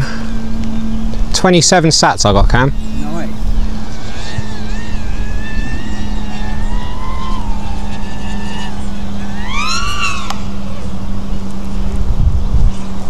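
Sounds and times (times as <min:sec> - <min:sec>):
quadcopter motors whining: 0:00.0 - 0:13.0
wind rumble on microphone: 0:00.0 - 0:13.0.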